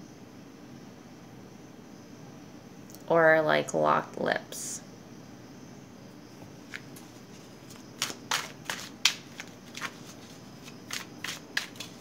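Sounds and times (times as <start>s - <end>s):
cards being shuffled: 6.6s - 12.0s.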